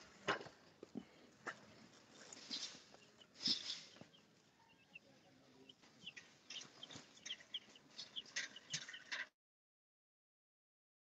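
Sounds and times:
baby chicks peeping: 2.2s - 9.3s.

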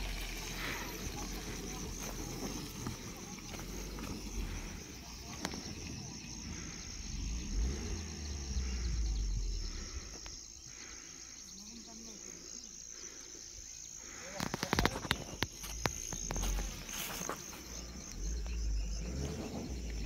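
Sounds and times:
faint voices: 0.0s - 18.6s
low rumble: 1.2s - 10.5s.

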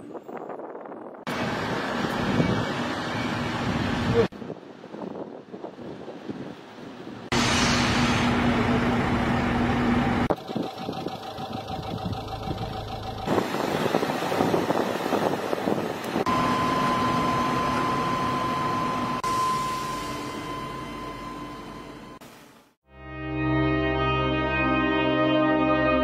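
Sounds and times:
heavy machinery engines running: 1.3s - 4.3s, 7.3s - 22.2s
high-pitched whine: 16.3s - 22.2s.

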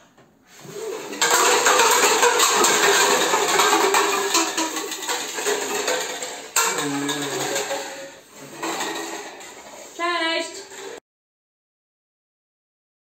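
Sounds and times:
loud breathy blowing: 0.4s - 1.2s
plastic cups clattering: 0.6s - 11.0s.

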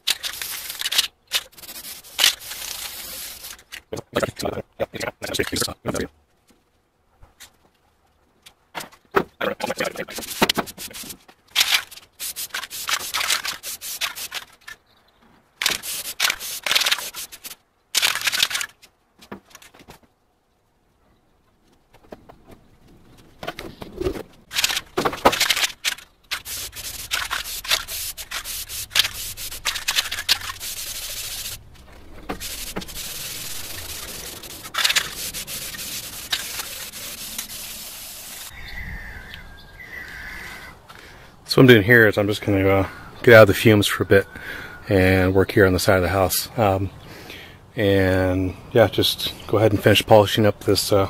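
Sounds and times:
spray-paint can hissing: 0.1s - 3.6s, 10.2s - 14.4s, 15.6s - 18.5s, 26.3s - 31.6s, 32.3s - 38.5s.

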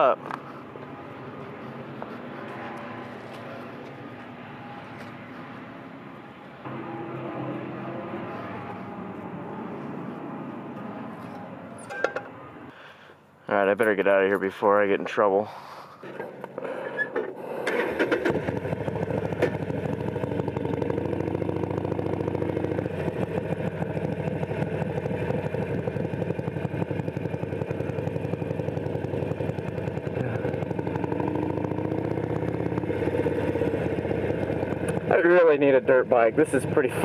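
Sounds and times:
motorcycle engine starting and running: 16.1s - 37.0s.

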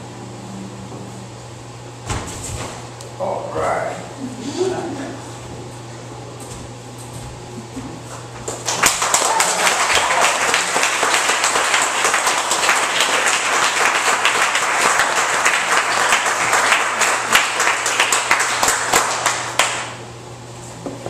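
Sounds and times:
audience applauding: 8.4s - 20.0s.

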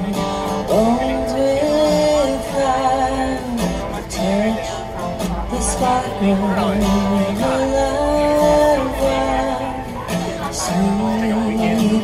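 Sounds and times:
acoustic guitar: 0.0s - 12.0s
woman singing slow melody: 5.5s - 12.0s.

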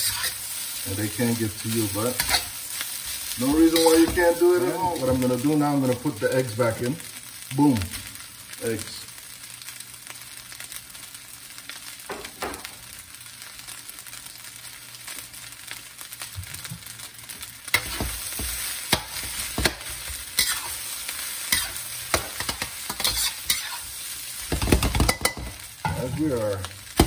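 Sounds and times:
spatula scraping and clacking on wok: 0.0s - 0.5s, 2.1s - 4.2s, 17.7s - 26.0s
rice sizzling in a wok: 0.0s - 27.0s.

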